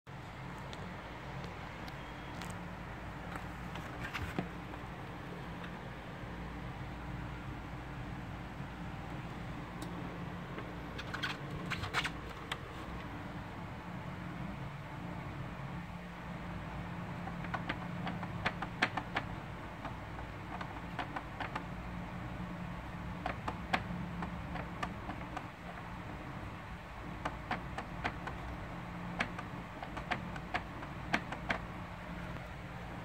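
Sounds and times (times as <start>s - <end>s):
steady low hum: 0.1s - 33.0s
plastic wheel clicking: 17.2s - 21.8s.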